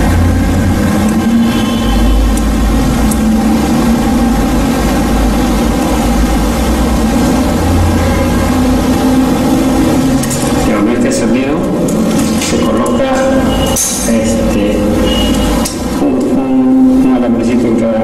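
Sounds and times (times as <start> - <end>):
hum: 0.0 - 18.0
low engine-like drone: 0.0 - 18.0.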